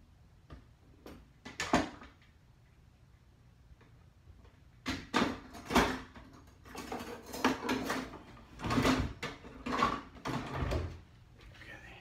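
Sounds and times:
objects clattering in drawer: 5.0s - 10.9s.

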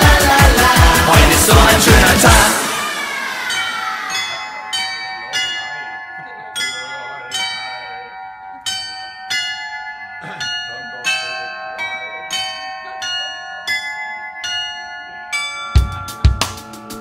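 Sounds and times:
tuned bells chiming a tune: 2.6s - 17.0s.

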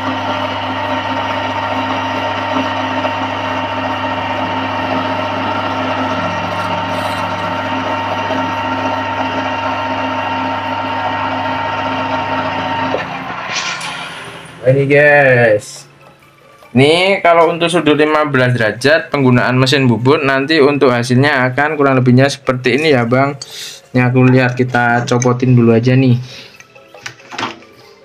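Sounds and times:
metal lathe running: 0.0s - 18.1s.

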